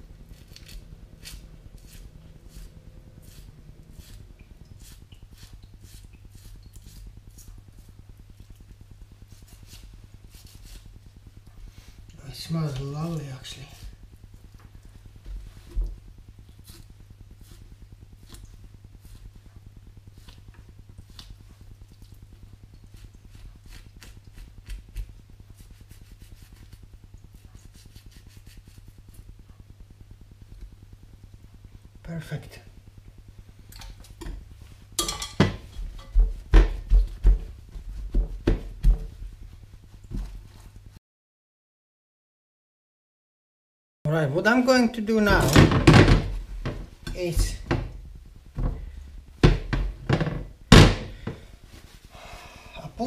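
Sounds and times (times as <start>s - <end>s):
steady low hum: 0.0s - 41.0s, 44.1s - 53.0s
meat thumping: 45.3s - 51.5s
paper towel rustles and dabs: 51.5s - 52.1s.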